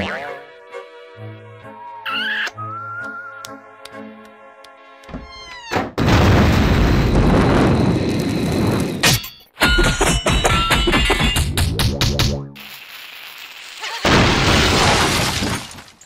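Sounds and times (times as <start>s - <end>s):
soft music: 0.0s - 5.3s
cartoon crashing and scuffling: 5.7s - 16.0s.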